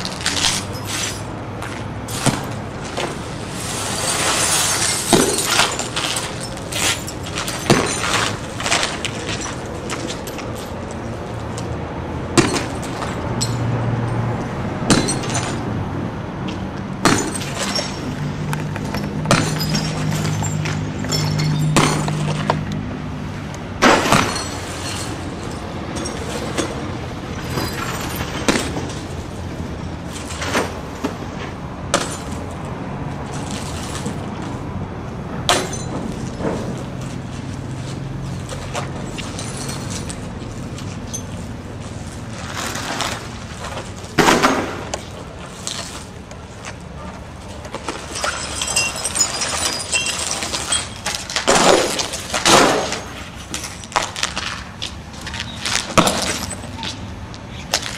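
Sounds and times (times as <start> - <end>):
windshield glass smashing: 2.1 - 10.1, 17.0 - 18.2, 47.8 - 54.3, 55.8 - 56.6.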